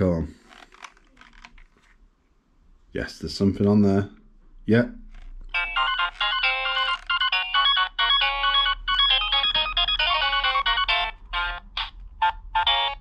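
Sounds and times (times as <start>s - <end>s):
toy beeping electronic melody: 5.5s - 13.0s.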